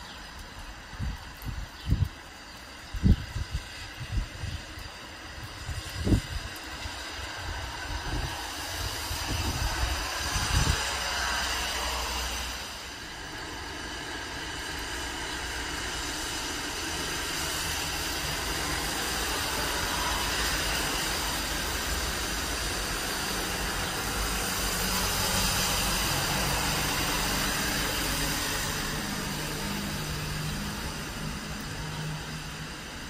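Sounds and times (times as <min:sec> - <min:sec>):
rain hissing: 0:00.0 - 0:33.0
tyres on wet asphalt: 0:00.0 - 0:33.0
truck engine hum: 0:14.3 - 0:33.0.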